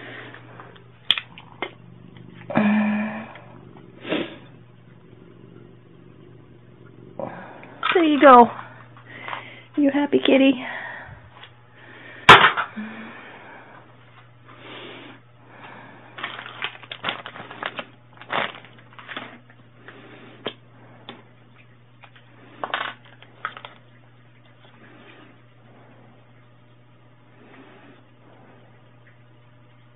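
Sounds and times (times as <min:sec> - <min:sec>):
faint steady hum: 0:00.0 - 0:29.9
plastic items clicking and rustling: 0:16.2 - 0:19.5, 0:22.0 - 0:23.8.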